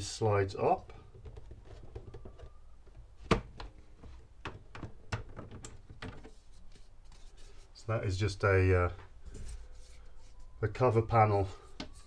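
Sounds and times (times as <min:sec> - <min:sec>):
plastic clicks and knocks: 0:01.1 - 0:03.7, 0:04.4 - 0:06.3.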